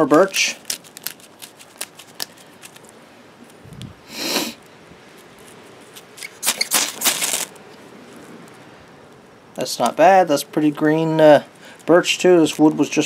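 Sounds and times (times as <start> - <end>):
person sniffing: 4.0 - 4.6.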